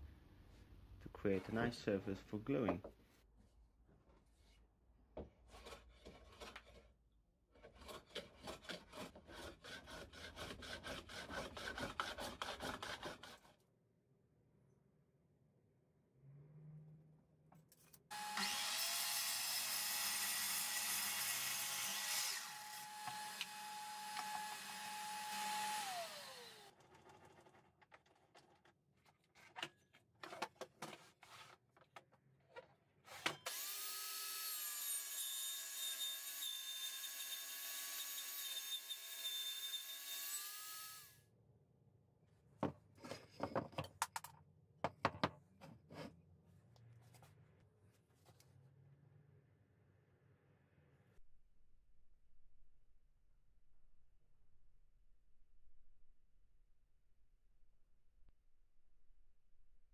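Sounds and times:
mitre saw cutting wood: 7.6s - 13.5s, 18.1s - 26.8s, 33.4s - 41.1s
table saw ripping a board: 18.1s - 27.7s.

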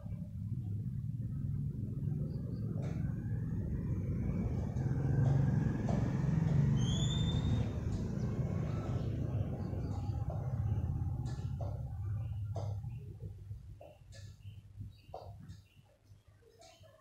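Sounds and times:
steady low rumble: 0.0s - 6.7s.

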